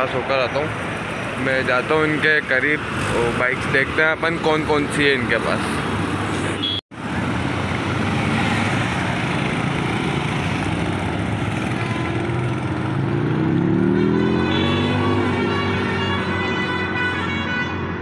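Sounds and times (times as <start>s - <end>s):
motorcycle engines: 0.0s - 18.0s
road traffic: 0.0s - 18.0s
motorcycle riding past: 7.8s - 16.4s.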